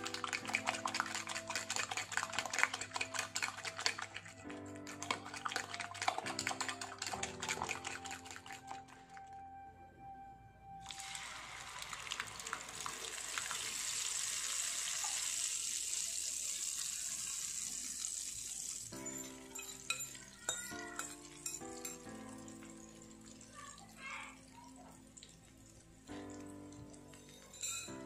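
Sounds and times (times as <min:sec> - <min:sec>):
background music: 0:00.0 - 0:12.5, 0:19.0 - 0:28.0
batter sizzling in hot oil: 0:10.9 - 0:28.0.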